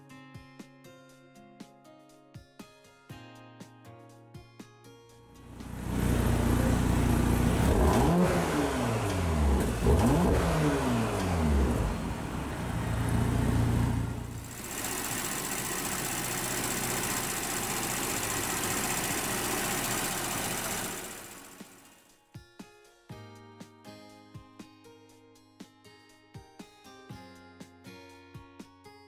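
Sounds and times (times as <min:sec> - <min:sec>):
car engine idling and revving: 0:05.4 - 0:21.9
engine running with hiss: 0:05.5 - 0:21.9.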